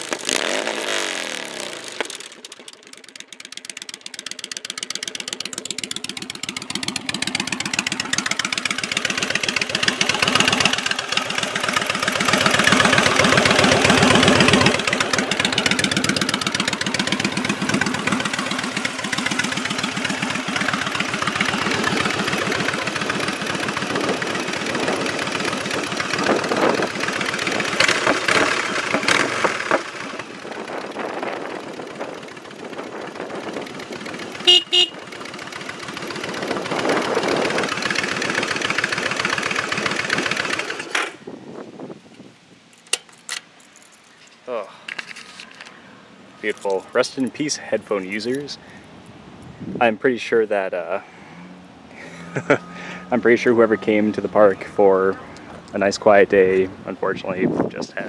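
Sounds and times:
motorcycle engine running: 0.0s - 41.5s, 50.6s - 58.0s
motorcycle horn honks: 34.4s - 35.2s.

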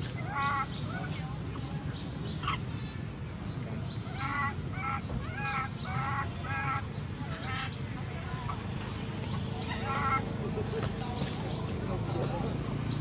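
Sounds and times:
baby monkey screeching cries: 4.1s - 7.8s.

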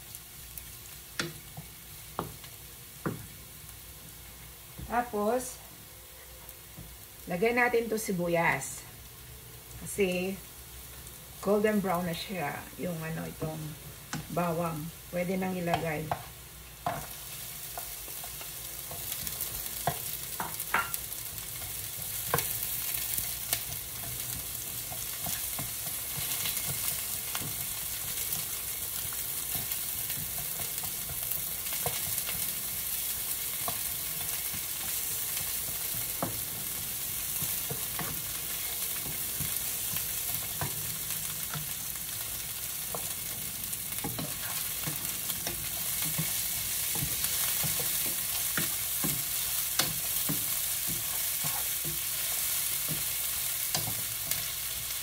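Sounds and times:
onion and garlic sizzling: 0.0s - 55.0s
utensil tapping a pan: 19.8s - 21.0s.

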